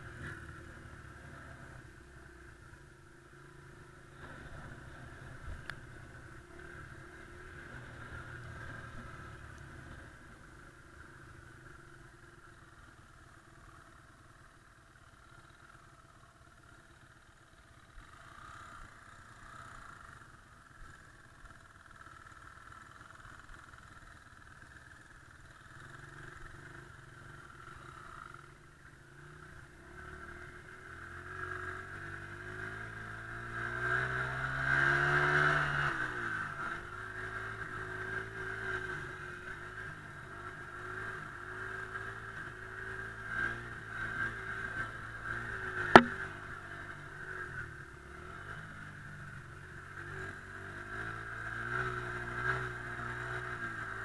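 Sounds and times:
dirt bike engine revving: 45.9s - 46.2s
sharp knock: 46.0s - 46.2s.

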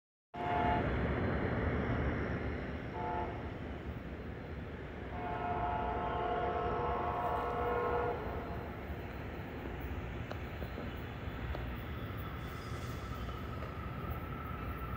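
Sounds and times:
train horn blasts: 0.4s - 1.0s, 2.9s - 3.5s, 5.1s - 8.8s.

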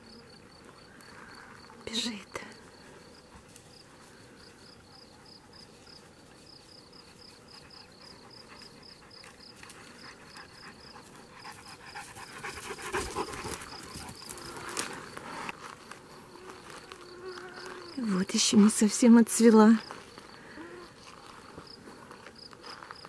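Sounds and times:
insect chirps: 0.0s - 23.0s
dog panting: 4.8s - 14.6s.

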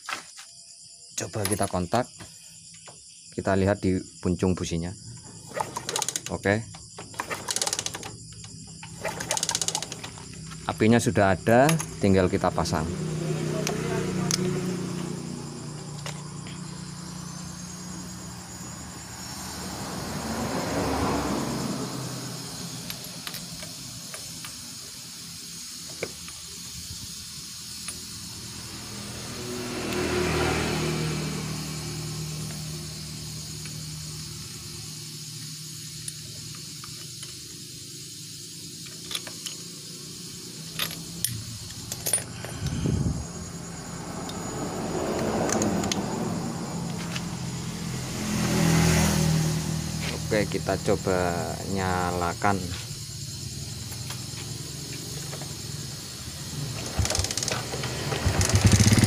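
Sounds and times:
crickets chirping: 0.0s - 59.0s
vehicle passing: 11.8s - 24.0s, 28.1s - 35.8s, 41.4s - 59.0s
metal tool clinking on engine: 40.7s - 42.8s.

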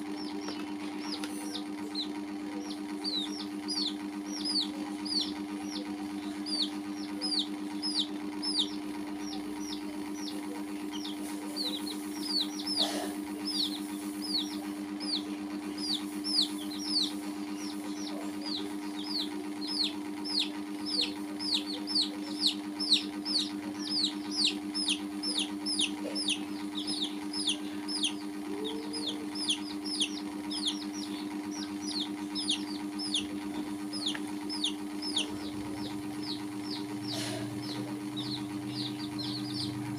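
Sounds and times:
baby chicks peeping: 0.0s - 39.9s.

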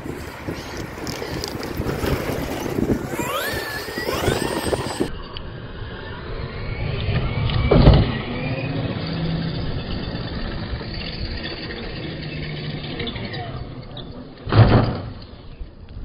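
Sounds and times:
tyre and ground noise: 0.0s - 16.0s
electric motor whining: 0.6s - 13.1s
toy truck tumbling thump: 14.5s - 15.2s.

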